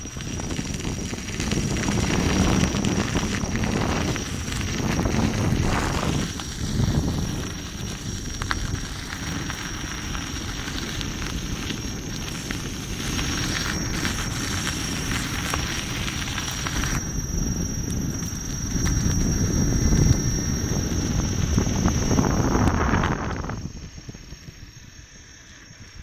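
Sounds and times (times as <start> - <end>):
wind buffeting microphone: 0.0 - 25.1
tyre rolling over gravel: 0.2 - 17.0.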